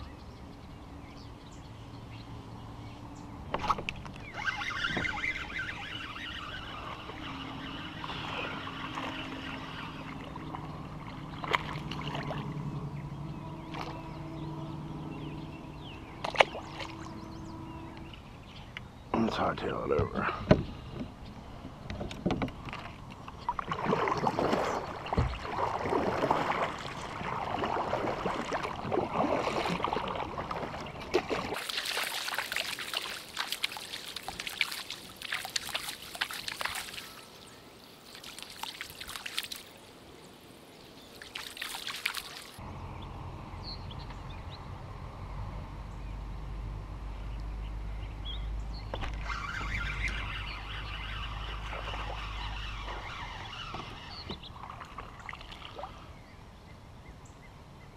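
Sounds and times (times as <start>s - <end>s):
water trickling and splashing: 2.0s - 20.8s, 21.4s - 42.6s, 48.9s - 56.3s
paddle blades dipping: 2.6s - 42.6s, 48.9s - 56.2s
water sloshing against hull: 2.8s - 39.8s, 41.0s - 42.6s, 48.9s - 56.3s
steady low rumble: 6.7s - 23.8s.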